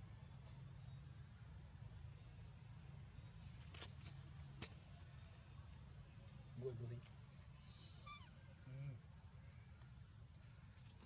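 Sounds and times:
high insect chorus: 0.0 - 11.0.

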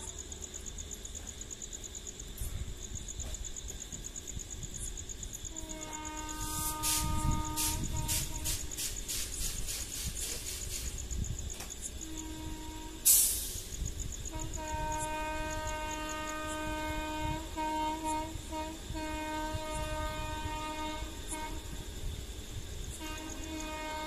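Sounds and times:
locomotive air horn: 5.5 - 9.0, 12.0 - 13.6, 14.3 - 22.0, 22.9 - 24.0
short burst of hiss: 6.3 - 11.2, 12.8 - 13.9.

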